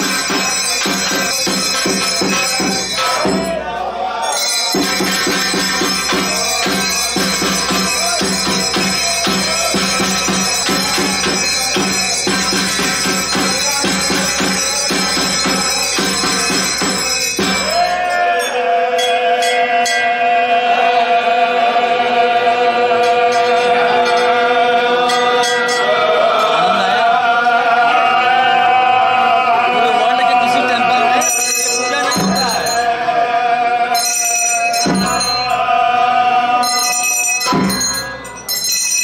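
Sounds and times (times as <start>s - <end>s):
priests chanting: 0.0s - 38.6s
steady rhythmic beat: 0.0s - 39.0s.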